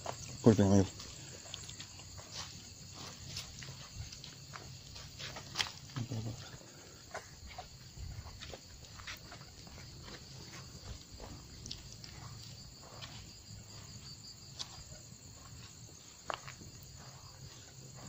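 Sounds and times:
footsteps through grass: 0.0 - 18.0
night insects chirring: 0.0 - 18.0.

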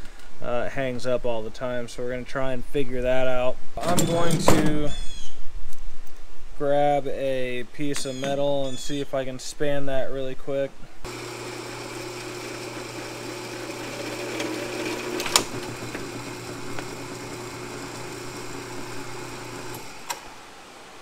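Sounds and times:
drill bit cutting metal: 11.1 - 20.2
drill press motor running: 11.1 - 20.4.

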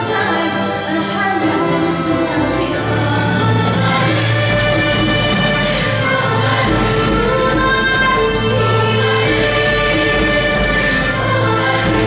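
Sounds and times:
singing voices: 0.0 - 12.0
symphony orchestra playing: 0.0 - 12.0.

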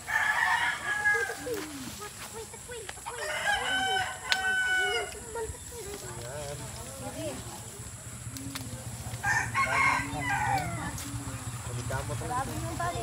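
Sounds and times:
roosters crowing: 0.0 - 1.6, 3.0 - 5.7, 7.9 - 13.0.

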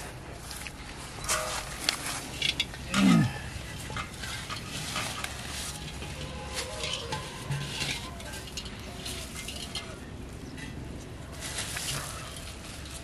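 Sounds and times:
plastic bag rustling: 0.4 - 10.2, 11.2 - 13.0
clay pot scraping: 1.2 - 10.8.

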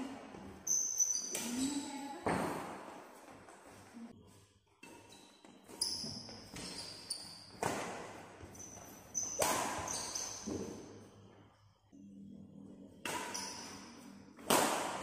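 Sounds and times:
shoes squeaking on court: 5.0 - 7.8, 8.4 - 10.8
racket hitting shuttlecock: 9.2 - 10.8, 13.0 - 13.7, 14.4 - 15.0.

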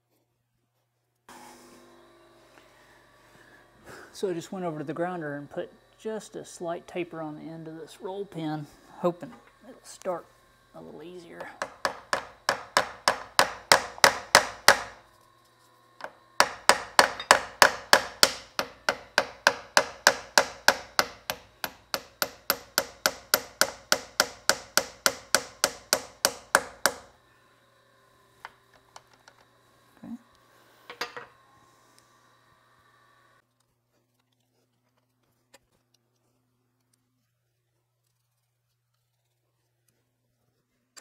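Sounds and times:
rapid hammer taps: 11.5 - 15.0, 16.0 - 27.1.

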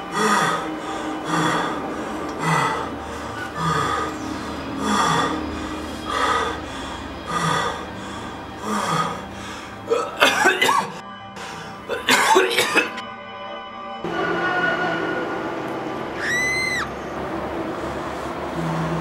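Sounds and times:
background music: 0.0 - 19.0
man coughing and choking: 9.9 - 11.0, 11.9 - 13.0.

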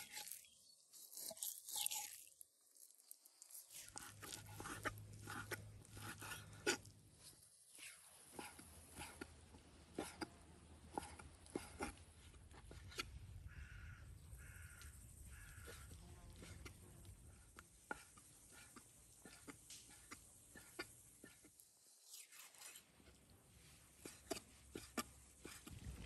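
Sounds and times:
faint animal calls: 12.6 - 21.5.

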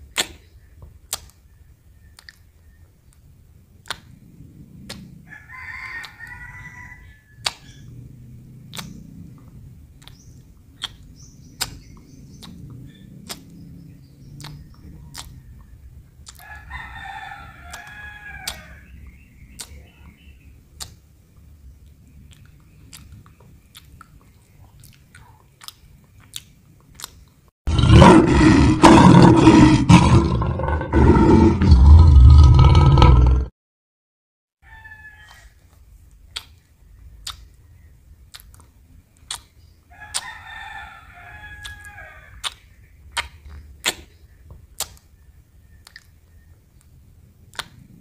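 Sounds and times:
sharp wet clicks: 0.0 - 5.2, 6.0 - 6.4, 7.4 - 8.0, 8.6 - 16.6, 17.6 - 27.5, 35.3 - 40.5, 41.5 - 48.0.

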